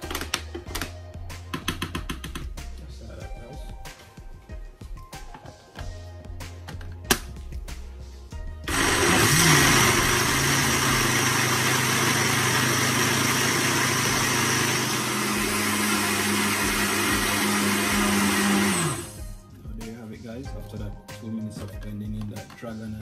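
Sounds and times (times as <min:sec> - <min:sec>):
blender motor running: 0:08.7 - 0:19.2.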